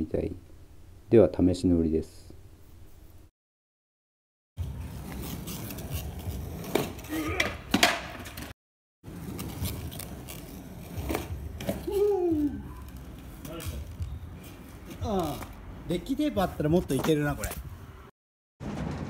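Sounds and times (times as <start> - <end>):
skateboard wheels rolling on concrete: 4.6 - 19.0
skateboard clacking: 6.2 - 8.5.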